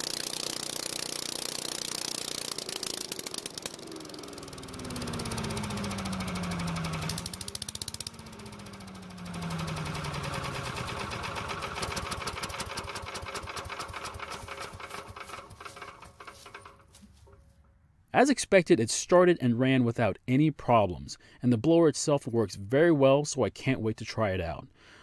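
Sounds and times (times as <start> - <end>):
leaf blower engine revving: 0.0 - 17.0.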